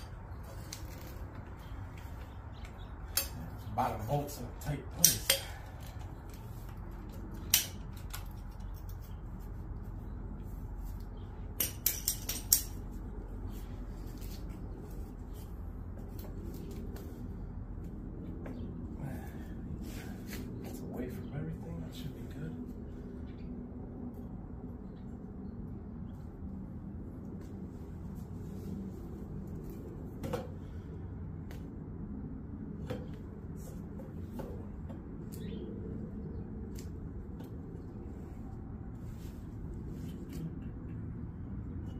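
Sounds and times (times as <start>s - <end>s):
low background rumble: 0.0s - 41.9s
tool clinking on metal: 4.9s - 5.7s, 11.6s - 12.8s.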